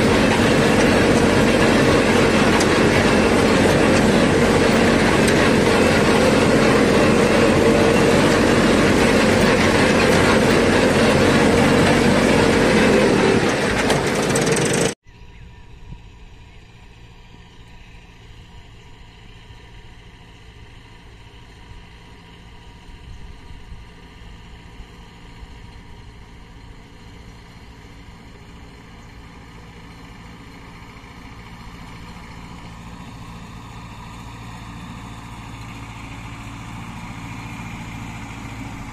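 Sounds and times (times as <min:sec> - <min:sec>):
crop duster blower rushing: 0:00.0 - 0:15.0
tractor engine: 0:00.0 - 0:15.0, 0:15.6 - 0:38.9.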